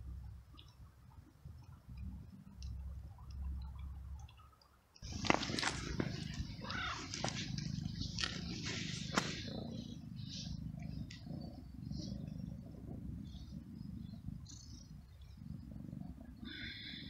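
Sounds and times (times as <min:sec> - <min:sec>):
small birds chirping: 0:03.4 - 0:17.0
cat purring: 0:05.0 - 0:17.0.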